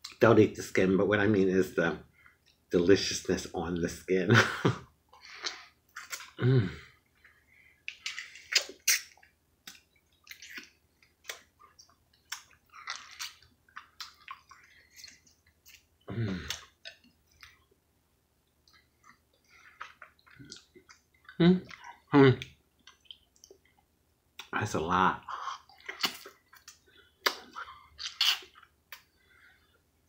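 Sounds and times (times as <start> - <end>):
person humming with pleasure: 6.4 - 6.8
wet chewing and sucking: 7.2 - 17.7, 22.8 - 24.5, 25.4 - 29.2.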